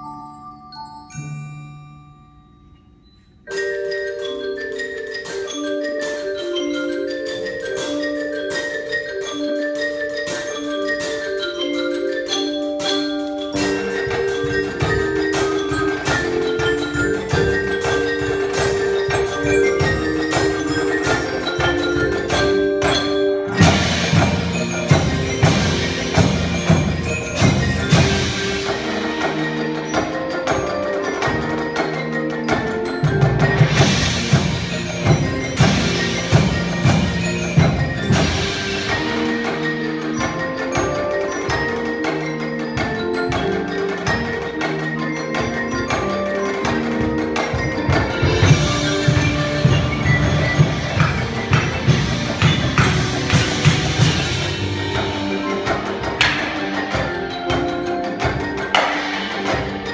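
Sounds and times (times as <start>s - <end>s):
marimba melody: 0.0s - 59.9s
drums striking low: 13.5s - 44.7s, 45.3s - 59.9s.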